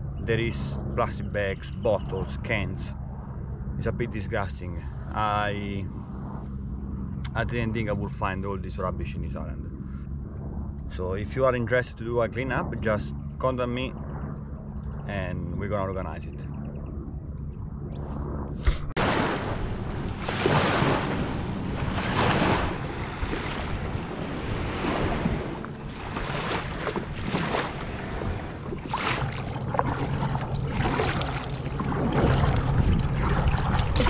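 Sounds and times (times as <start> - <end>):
wind buffeting microphone: 0.0 - 34.0
water splashing around a kayak: 19.0 - 34.0.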